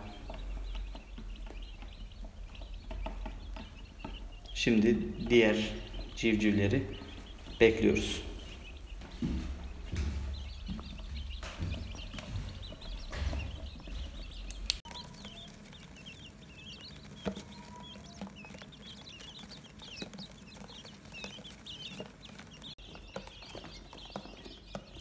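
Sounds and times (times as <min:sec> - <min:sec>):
low bumps and rumbles: 0:00.0 - 0:18.7
quail chicks peeping: 0:00.0 - 0:25.0.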